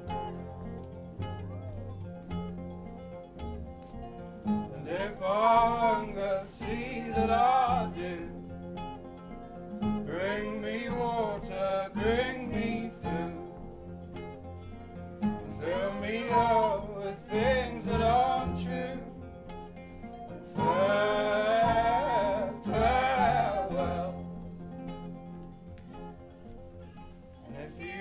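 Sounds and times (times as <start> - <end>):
acoustic guitars strumming: 0.0 - 28.0
double bass: 0.0 - 28.0
fiddle: 0.0 - 28.0
male and female voices singing: 4.7 - 8.6, 10.0 - 14.1, 15.4 - 19.4, 20.4 - 24.6, 27.5 - 28.0.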